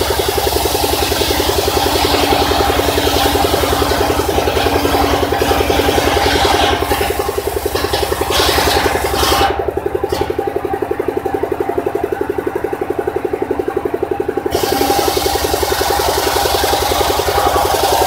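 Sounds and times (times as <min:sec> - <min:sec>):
saw blade cutting wood: 0:00.0 - 0:10.3, 0:14.5 - 0:18.0
saw bench engine pulsing: 0:00.0 - 0:18.0.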